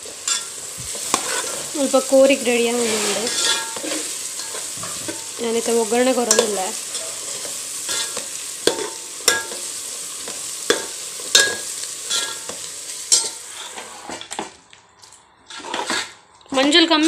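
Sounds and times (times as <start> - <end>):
onions sizzling in oil: 0.0 - 14.5
ladle scraping metal pot: 0.1 - 9.6, 10.7 - 14.5, 15.4 - 16.2.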